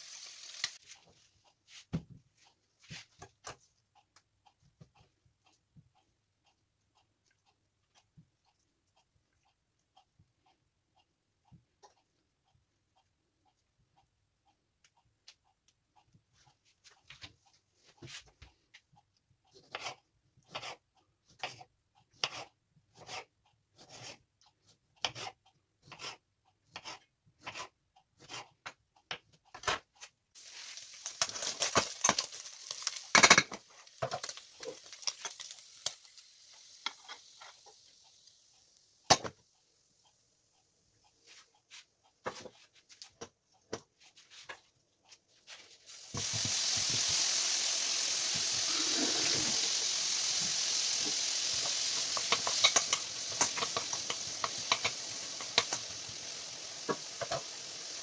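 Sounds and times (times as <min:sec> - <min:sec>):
frying hiss: 0:00.0 - 0:01.0, 0:30.4 - 0:40.3, 0:45.5 - 0:58.0
knife cutting on wooden board: 0:19.6 - 0:20.8, 0:21.4 - 0:24.2, 0:25.0 - 0:28.5
pan clattering: 0:31.0 - 0:34.4, 0:51.6 - 0:56.0.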